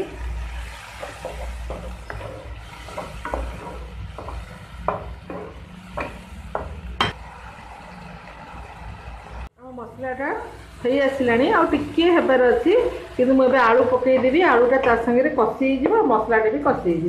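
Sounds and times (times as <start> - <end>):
light sizzle: 0.0 - 17.0
spatula scraping a pan: 0.4 - 6.9.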